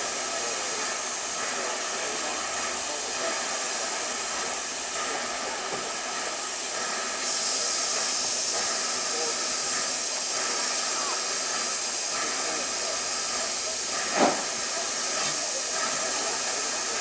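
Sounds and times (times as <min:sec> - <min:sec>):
steam locomotive hissing: 0:00.0 - 0:17.0.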